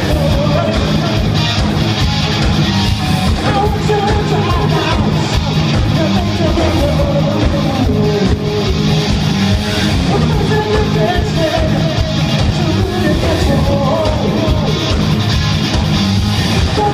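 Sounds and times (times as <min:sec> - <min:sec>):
person singing: 0:00.0 - 0:01.5, 0:03.3 - 0:09.3, 0:09.9 - 0:15.1, 0:16.6 - 0:16.9
rock band playing: 0:00.0 - 0:16.9.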